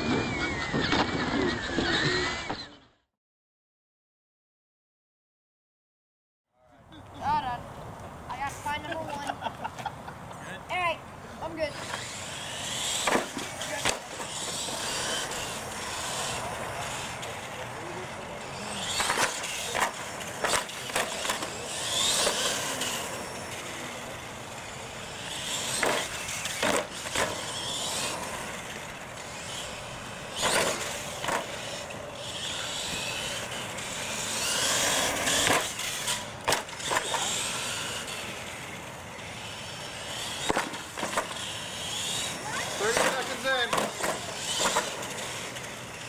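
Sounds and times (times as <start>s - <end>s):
toy truck motor whining: 0.0s - 3.0s, 10.8s - 46.0s
truck hitting wooden ramps: 34.4s - 37.8s.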